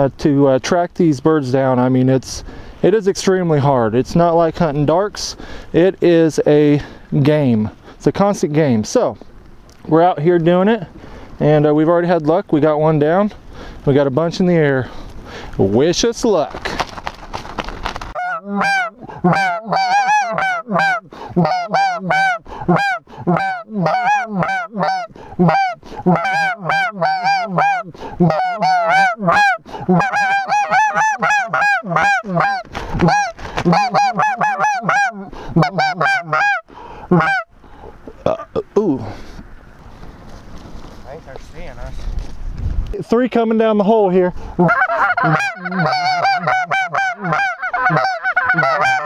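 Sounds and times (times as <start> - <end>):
goose honking: 18.1 - 37.5, 44.6 - 49.0.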